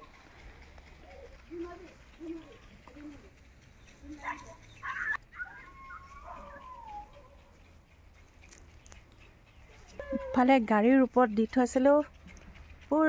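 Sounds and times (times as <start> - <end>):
dog yelping: 4.2 - 7.7, 9.8 - 10.7
dog whining: 4.8 - 7.6, 9.9 - 10.5.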